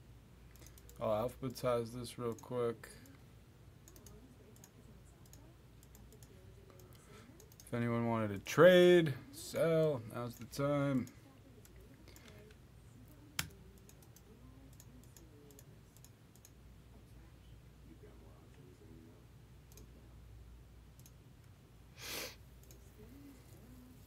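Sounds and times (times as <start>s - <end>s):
faint steady hum: 0.0s - 24.0s
computer clicks: 0.5s - 1.0s, 3.8s - 7.7s, 13.4s - 16.6s, 21.0s - 21.2s.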